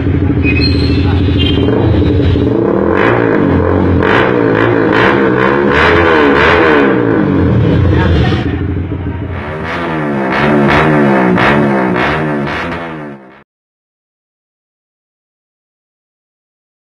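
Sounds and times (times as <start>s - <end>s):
motorcycle engine revving: 0.0s - 13.4s.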